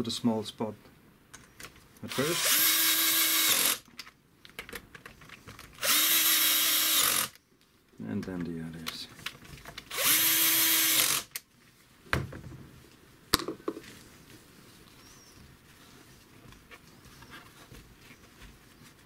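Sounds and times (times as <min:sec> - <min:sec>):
power drill spinning: 0:02.1 - 0:03.9, 0:05.8 - 0:07.4, 0:09.9 - 0:11.4.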